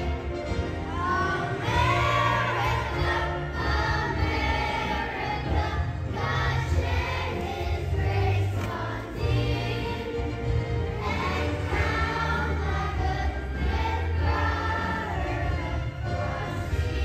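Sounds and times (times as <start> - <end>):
children's choir singing: 0.0 - 17.0
instrumental accompaniment with bass: 0.0 - 17.0.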